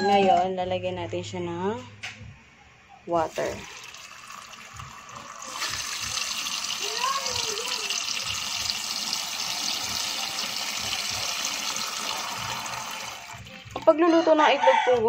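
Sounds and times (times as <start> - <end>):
tap water pouring into metal pot: 3.6 - 13.8.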